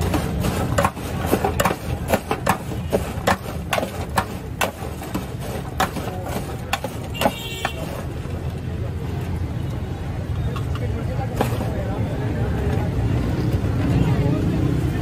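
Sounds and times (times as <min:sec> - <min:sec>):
steel cup clinking and scraping tray: 0:00.0 - 0:08.1
fries tossed in a steel tray: 0:00.0 - 0:08.2, 0:11.3 - 0:11.8.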